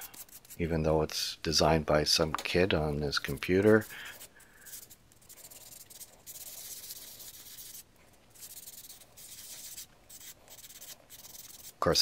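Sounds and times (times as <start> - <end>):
sandpaper rubbing plastic: 8.4 - 11.8.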